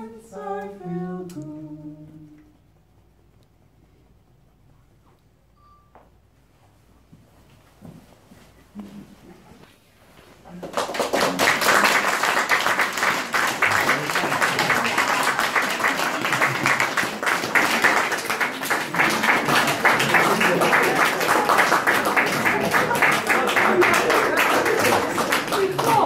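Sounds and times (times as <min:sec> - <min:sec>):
audience applauding: 0:10.5 - 0:26.0
voices: 0:17.6 - 0:26.0.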